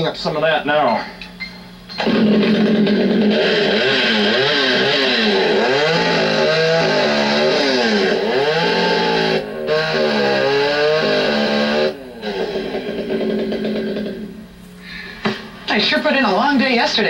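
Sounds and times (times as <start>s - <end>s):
chainsaw cutting log: 2.0s - 14.4s.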